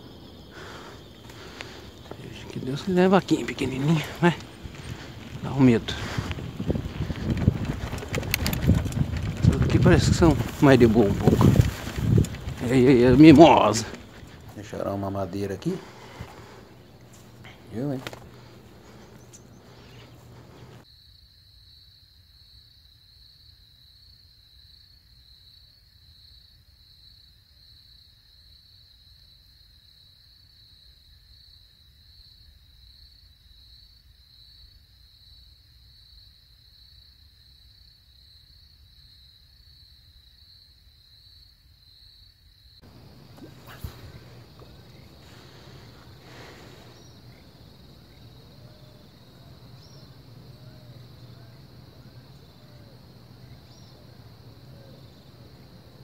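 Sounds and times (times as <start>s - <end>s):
insect trilling: 0.0s - 20.8s, 42.8s - 56.0s.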